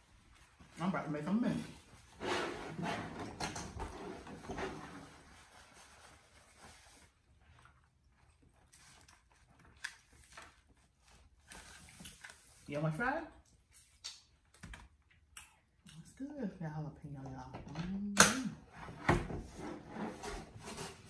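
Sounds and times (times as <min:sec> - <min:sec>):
paper wrapper rustling: 0:08.7 - 0:12.7.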